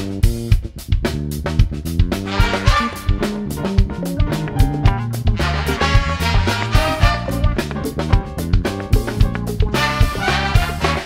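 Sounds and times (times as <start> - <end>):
electric bass line: 0.0 - 11.0
funk big band playing: 0.0 - 11.0
drum hits: 1.5 - 11.0
horns holding a line: 2.3 - 3.4, 5.3 - 7.7, 9.8 - 11.0.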